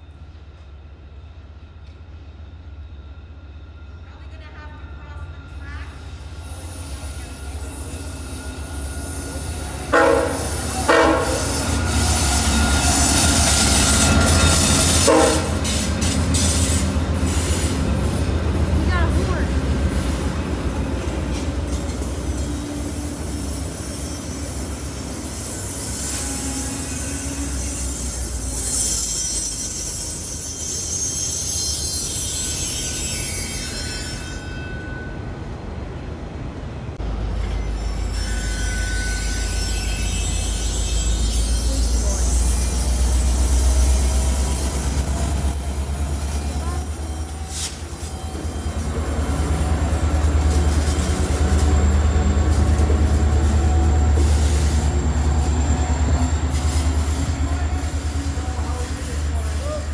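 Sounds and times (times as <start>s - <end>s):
locomotive engine rumbling: 0.0s - 34.2s, 35.1s - 59.9s
train wheels on rail: 0.0s - 59.9s
train horn blasts: 9.6s - 16.1s.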